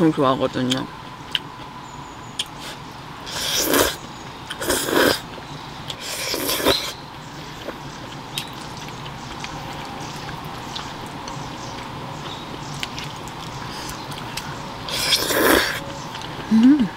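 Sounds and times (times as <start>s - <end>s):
spaghetti slurping: 2.6s - 5.2s, 6.0s - 7.0s, 14.9s - 15.8s.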